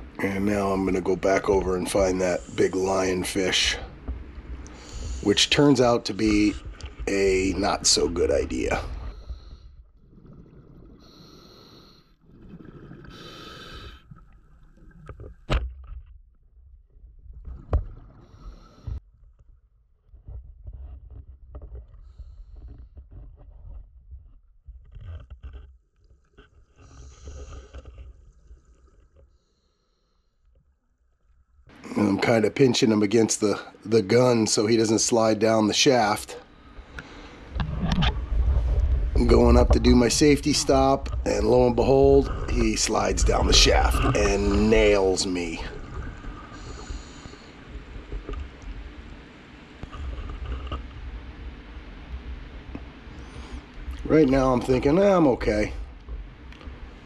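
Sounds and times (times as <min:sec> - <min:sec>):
underwater rumble: 0:00.0 - 0:29.7, 0:36.5 - 0:57.0
hissing regulator inhale: 0:04.6 - 0:05.3, 0:11.0 - 0:12.2, 0:13.1 - 0:14.2, 0:46.3 - 0:47.8
bubbling regulator exhaust: 0:36.6 - 0:48.8.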